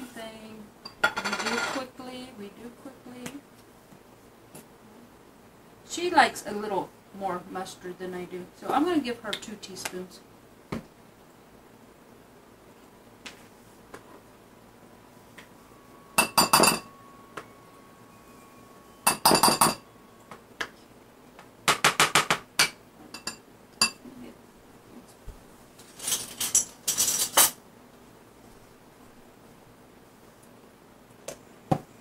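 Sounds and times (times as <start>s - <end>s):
spoon clinking against bowl: 16.1s - 17.6s, 18.4s - 19.9s, 22.6s - 24.0s.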